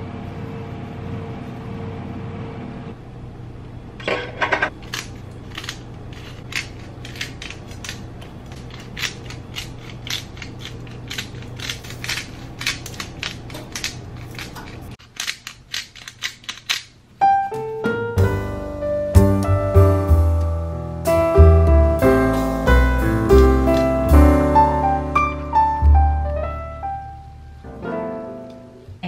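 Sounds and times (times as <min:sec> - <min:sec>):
air conditioner hum: 0:00.0 - 0:29.0
pepper grinder crunching clicks: 0:04.8 - 0:17.0.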